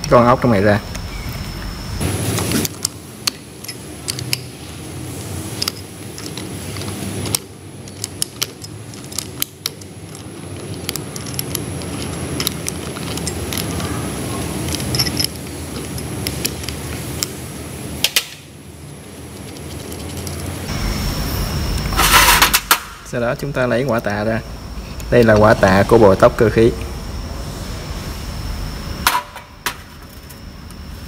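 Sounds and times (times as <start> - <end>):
steady background noise: 0.0 - 31.0
metallic clicks of spanner on pump: 2.7 - 4.5.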